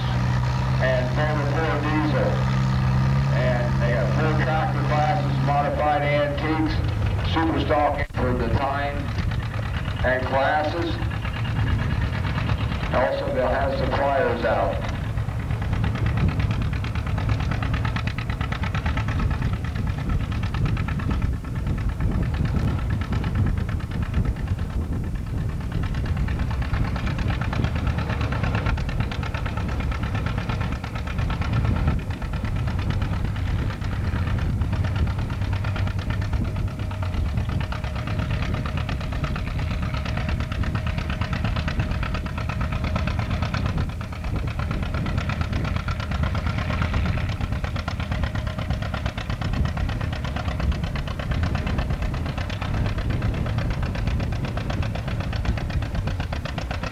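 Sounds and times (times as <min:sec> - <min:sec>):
tractor engine labouring: 0:00.0 - 0:56.9.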